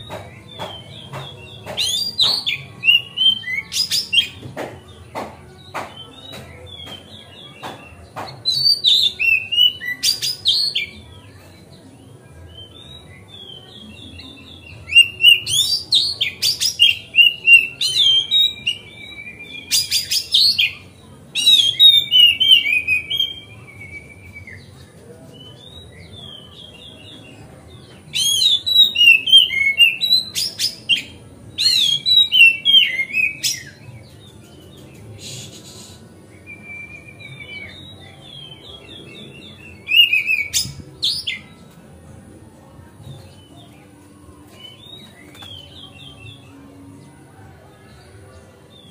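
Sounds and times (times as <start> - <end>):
bird singing whistles and clicks: 0.2 - 4.4.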